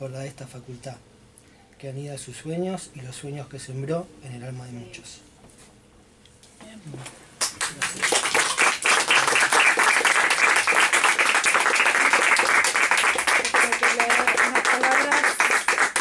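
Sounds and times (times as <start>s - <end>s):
people applauding: 7.4s - 16.0s.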